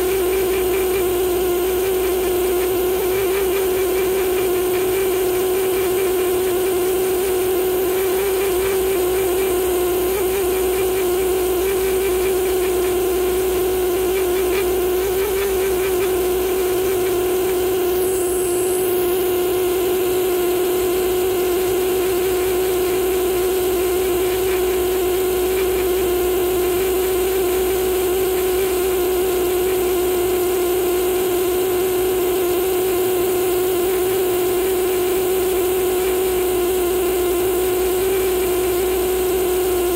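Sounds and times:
pneumatic air scribe buzzing: 0.0s - 39.9s.

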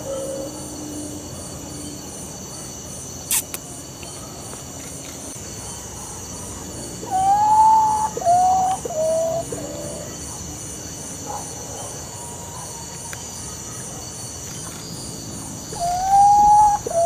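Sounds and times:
insects trilling: 0.0s - 17.0s
single sharp click: 3.3s - 3.6s
bird whistling falling notes: 15.8s - 17.0s.

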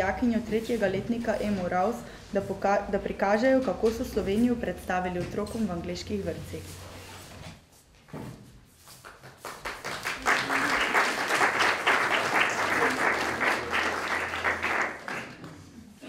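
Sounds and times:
audience applauding: 9.2s - 15.9s.

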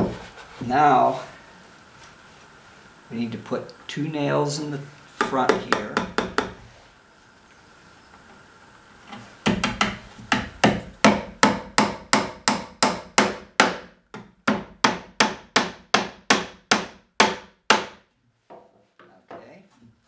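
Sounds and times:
hammer driving nails into wood: 9.4s - 18.0s.

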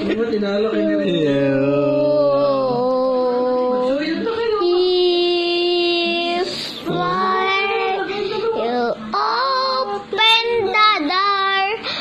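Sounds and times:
boy singing long notes: 1.3s - 3.8s.

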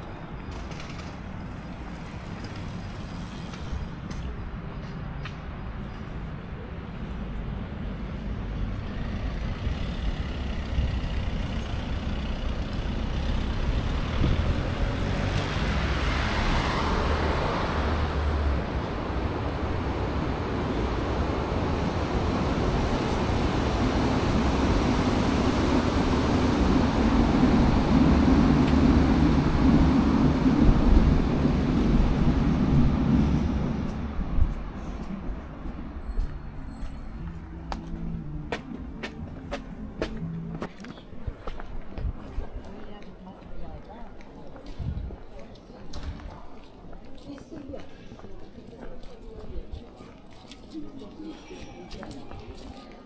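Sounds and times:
vehicle passing: 8.4s - 42.0s
low steady engine hum: 16.2s - 40.8s.

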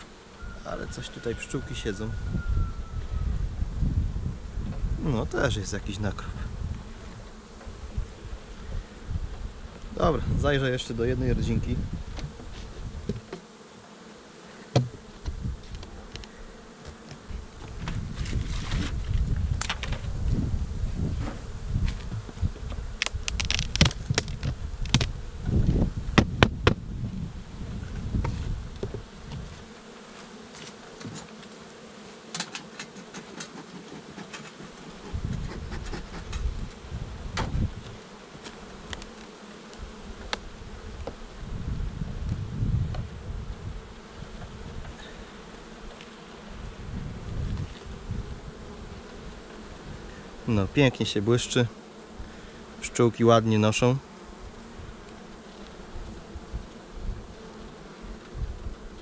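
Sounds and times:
honeybees buzzing: 0.0s - 59.0s
knock on hive woodwork: 14.7s - 15.0s, 26.2s - 26.8s
hive parts clattering: 21.3s - 25.1s, 28.8s - 41.2s.

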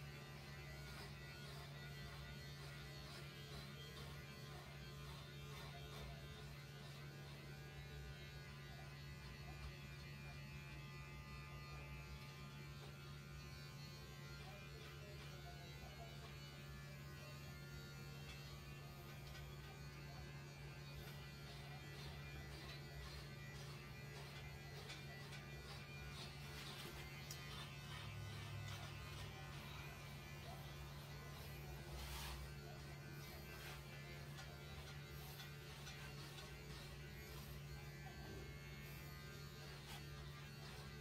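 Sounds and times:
electric hair clippers buzzing: 0.0s - 41.0s
faint music: 0.0s - 41.0s.

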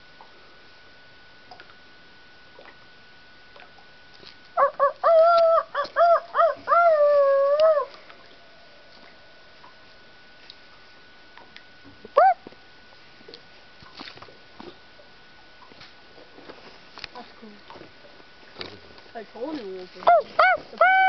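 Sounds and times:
person howling like a wolf: 4.6s - 8.0s, 20.1s - 21.0s.

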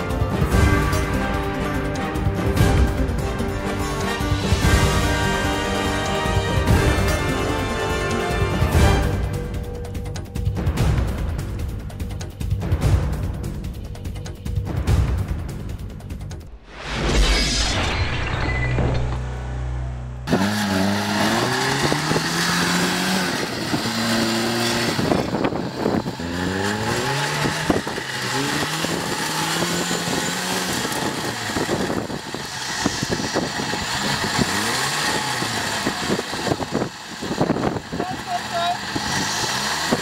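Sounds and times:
car engine revving: 19.0s - 40.0s.

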